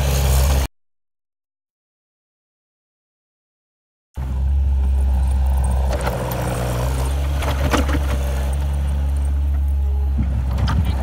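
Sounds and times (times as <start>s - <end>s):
diesel engine under load: 0.0s - 0.7s, 4.2s - 11.0s
loader knocks and clatters: 4.7s - 11.0s.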